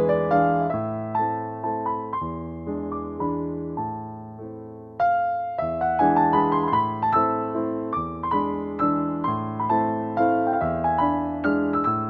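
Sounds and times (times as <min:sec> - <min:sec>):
slow piano music: 0:00.0 - 0:12.0.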